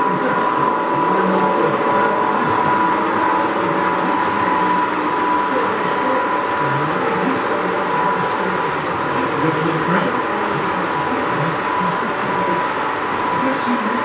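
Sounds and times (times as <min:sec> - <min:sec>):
model train running on track: 0:00.0 - 0:14.0
thin high whine: 0:00.0 - 0:14.0.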